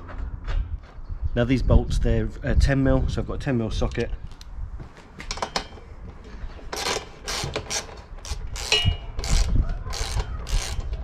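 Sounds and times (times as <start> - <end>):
ratchet pawl clicking: 6.8 - 11.0.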